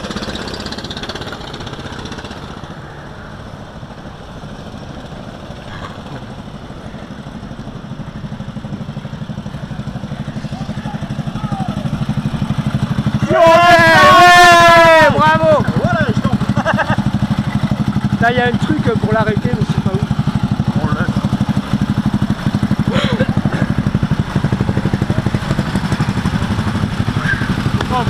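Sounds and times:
go-kart engine putter: 0.0s - 2.8s, 15.0s - 28.0s.

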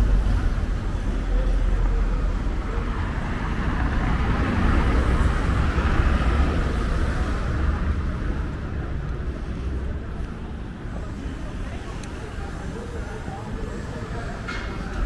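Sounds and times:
steady low rumble: 0.0s - 11.8s.

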